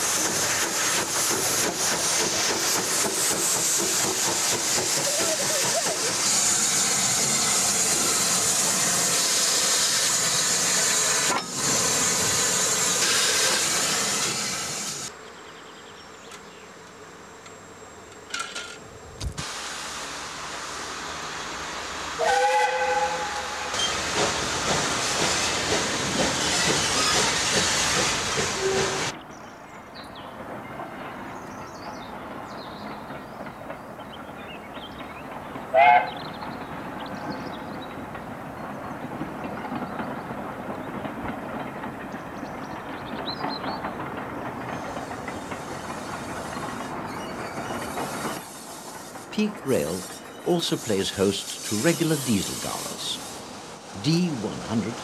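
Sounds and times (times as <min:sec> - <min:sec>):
steam locomotive hissing: 0:00.0 - 0:15.2, 0:19.4 - 0:29.2, 0:34.2 - 0:55.0
locomotive whistle blast: 0:22.2 - 0:24.0, 0:35.8 - 0:36.2.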